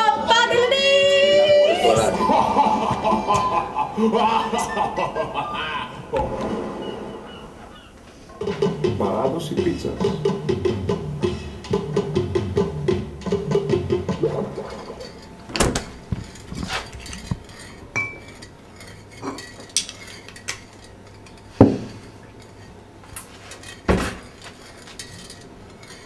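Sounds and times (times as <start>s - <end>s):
spoon clinking: 16.2s - 22.8s
crockery knocking: 21.6s - 22.0s.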